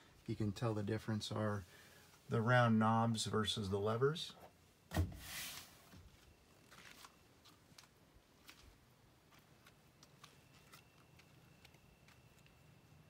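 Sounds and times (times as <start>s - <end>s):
faint high steady tone: 10.2s - 13.0s.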